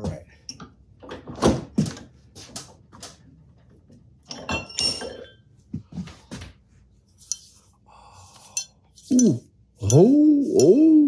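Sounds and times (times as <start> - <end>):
metal clinking and knocking: 4.3 - 5.4.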